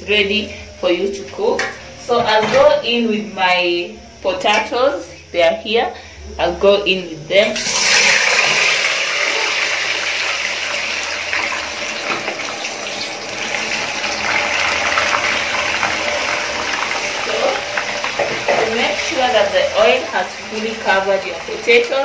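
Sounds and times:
potatoes sizzling in hot oil: 7.6s - 22.0s.

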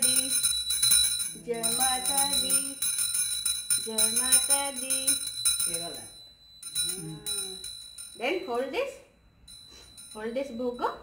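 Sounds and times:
hand bell rung rapidly: 0.0s - 11.0s
person speaking: 6.8s - 7.7s.

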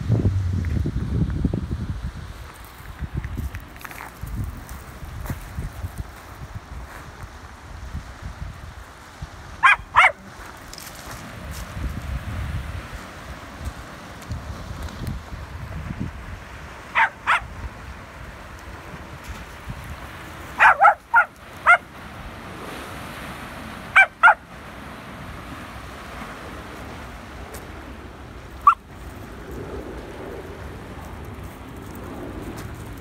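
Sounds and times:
waves: 0.0s - 33.0s
wind: 0.0s - 33.0s
small dog barking: 9.6s - 10.3s, 16.9s - 17.5s, 20.6s - 21.9s, 23.9s - 24.5s, 28.6s - 28.9s.

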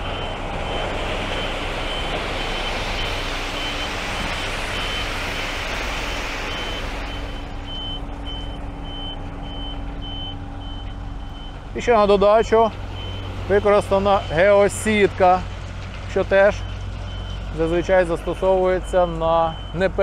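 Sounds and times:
reversing alarm beeps: 0.0s - 5.2s, 6.4s - 11.6s, 13.0s - 14.7s, 16.5s - 20.0s
diesel engine running: 0.0s - 20.0s.

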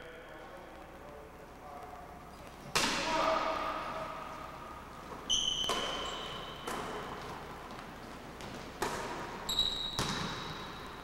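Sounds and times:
sneakers squeaking: 2.3s - 11.0s
basketball bouncing on wooden floor: 9.8s - 10.7s.

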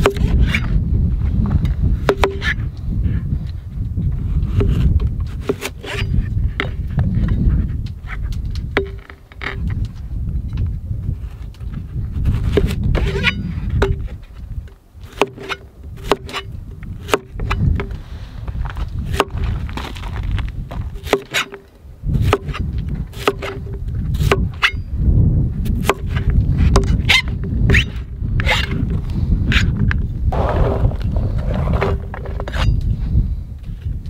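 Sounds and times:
low rumble: 30.2s - 33.4s.

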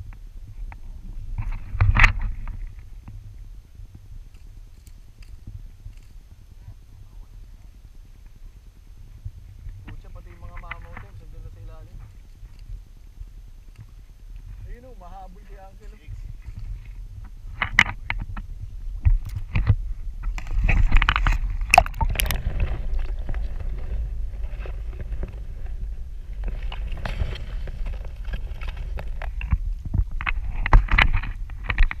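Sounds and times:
steady low rumble: 0.0s - 32.0s
water splashing and sloshing: 20.3s - 29.5s.

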